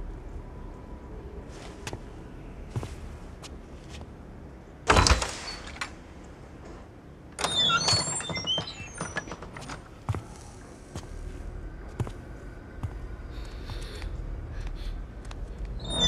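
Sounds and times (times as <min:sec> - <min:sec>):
metallic squeaks and scrapes: 0:15.8 - 0:16.0.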